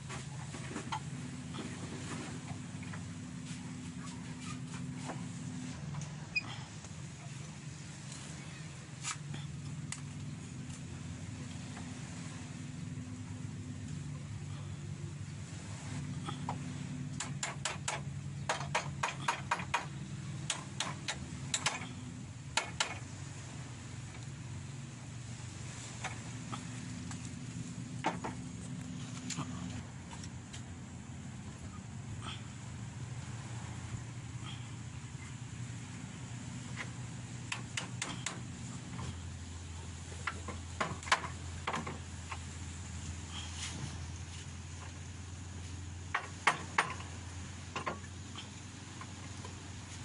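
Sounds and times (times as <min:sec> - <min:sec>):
low steady hum: 0:00.0 - 0:50.0
hand tools knocking on wood: 0:17.2 - 0:19.9, 0:22.6 - 0:23.0, 0:40.2 - 0:42.0, 0:46.1 - 0:47.1
sharp knocks: 0:17.2 - 0:21.9.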